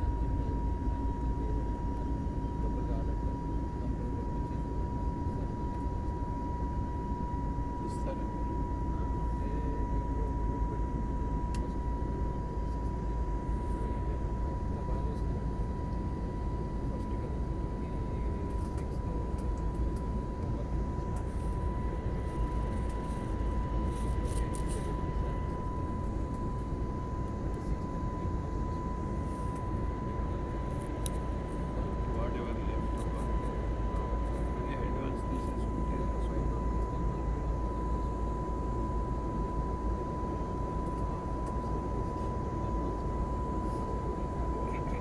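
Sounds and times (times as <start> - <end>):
airliner cabin rumble: 0.0 - 45.0
steady whine: 0.0 - 45.0.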